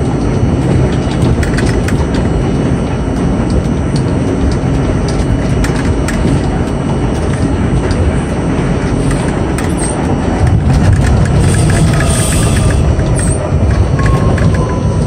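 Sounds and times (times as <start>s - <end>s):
subway car wheels rumbling: 0.0s - 15.0s.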